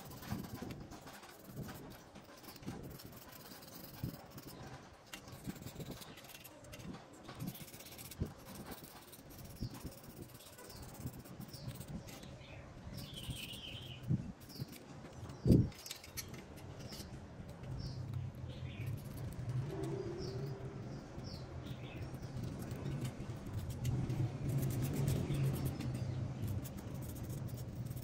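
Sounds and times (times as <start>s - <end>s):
faint bird chirps: 8.8s - 14.8s
metal parts clicking on tray: 14.5s - 18.1s.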